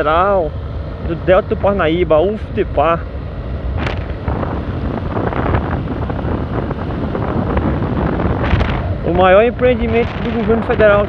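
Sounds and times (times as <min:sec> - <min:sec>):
wind buffeting microphone: 0:00.9 - 0:11.0.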